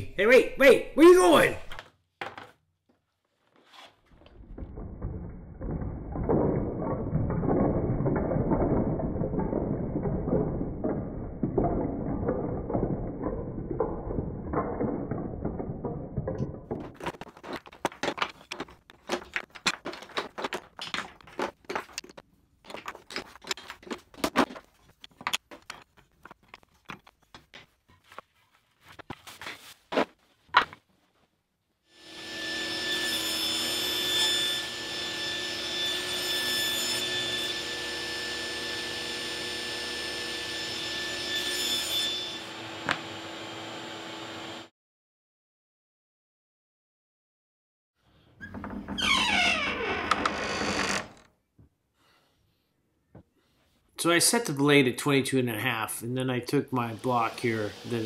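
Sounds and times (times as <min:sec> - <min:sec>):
wooden blocks clattering: 0:01.8 - 0:02.6, 0:03.6 - 0:29.8, 0:30.4 - 0:30.9.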